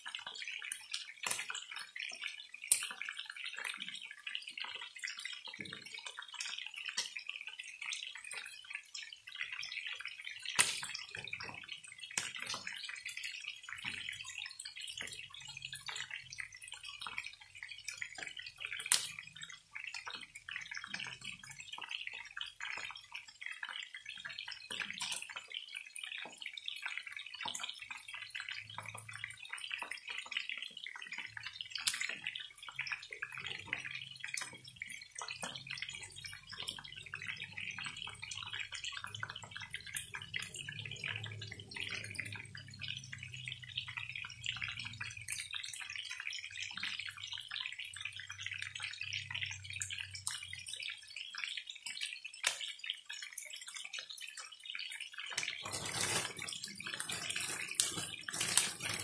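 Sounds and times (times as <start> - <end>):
chicken sizzling in hot oil: 0.0 - 59.0.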